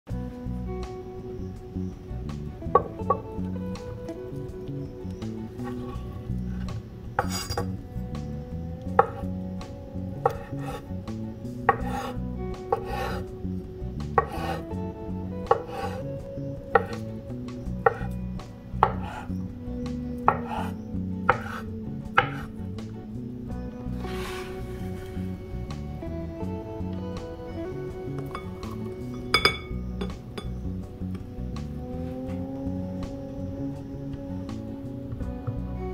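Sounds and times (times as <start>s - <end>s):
soft background music: 0.1s - 35.9s
knife slicing on cutting board: 21.3s - 21.6s.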